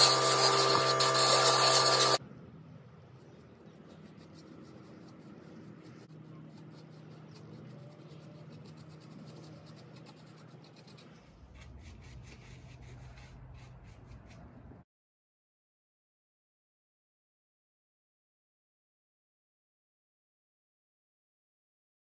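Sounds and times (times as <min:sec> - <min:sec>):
brush strokes on wood: 0:00.0 - 0:02.2, 0:03.2 - 0:14.7.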